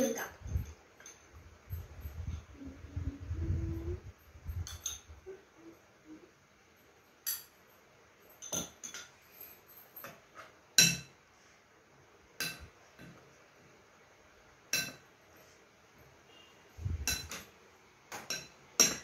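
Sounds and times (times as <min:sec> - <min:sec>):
metal spoon clinking on plate: 0:04.6 - 0:05.1, 0:07.2 - 0:07.6, 0:08.4 - 0:09.2, 0:12.4 - 0:12.7, 0:14.7 - 0:15.1, 0:17.0 - 0:17.5, 0:18.2 - 0:19.0.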